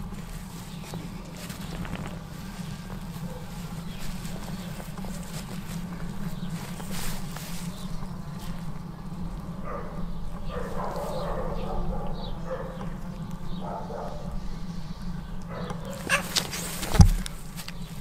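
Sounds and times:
cats calling while play-fighting: 15.4s - 17.6s
cat bumping into camera: 16.0s - 17.4s.

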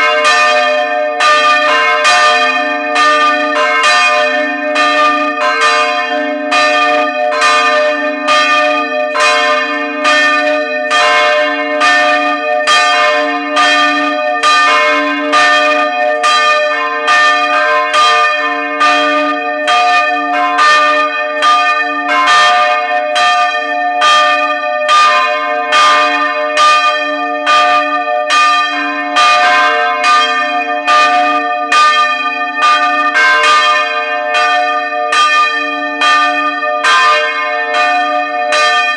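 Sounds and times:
church bells ringing: 0.0s - 38.9s.

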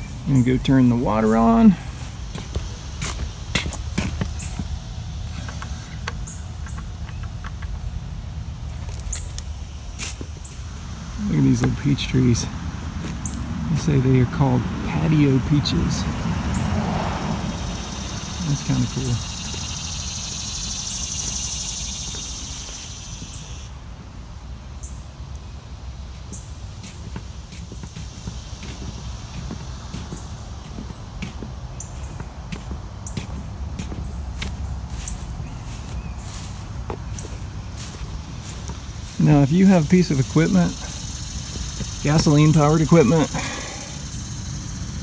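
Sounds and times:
high insect buzzing: 19.2s - 23.8s.

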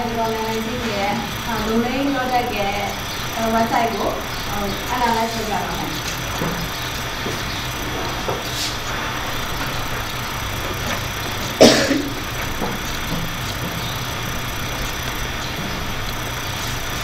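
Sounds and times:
low hum and hiss: 0.0s - 17.0s
person coughing: 11.6s - 12.2s.

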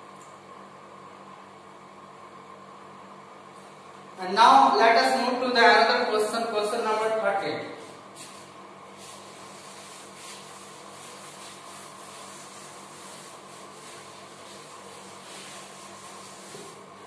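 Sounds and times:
duster rubbing on chalkboard: 7.9s - 17.0s.

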